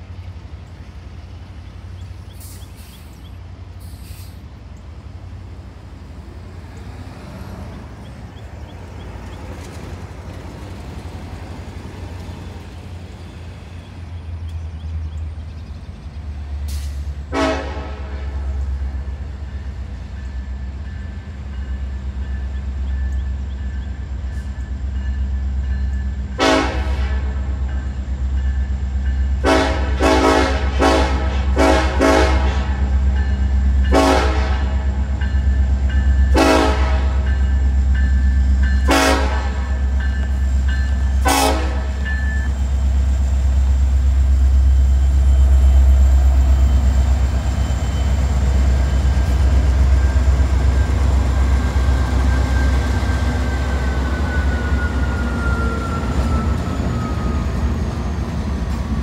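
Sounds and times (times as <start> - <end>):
diesel engines rumbling: 0.0 - 59.0
locomotive air horn blasts: 17.3 - 18.8, 26.3 - 27.6, 29.4 - 32.9, 33.9 - 35.0, 36.3 - 37.4, 38.8 - 39.9, 41.1 - 42.2.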